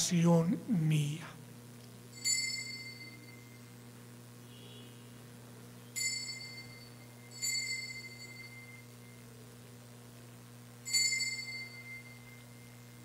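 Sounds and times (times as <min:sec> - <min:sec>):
bell ringing: 0:02.2 - 0:03.7, 0:06.0 - 0:09.2, 0:10.9 - 0:13.0.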